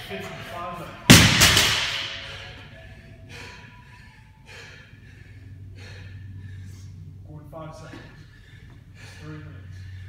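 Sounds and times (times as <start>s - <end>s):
barbell crashing on floor: 1.1s - 2.4s
heavy breaths: 2.1s - 10.0s.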